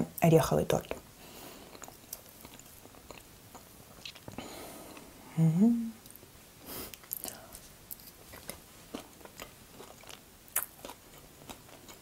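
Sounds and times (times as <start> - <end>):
chewing crunches: 1.7 - 4.4, 7.0 - 12.0
wet mouth clicks: 1.8 - 4.4.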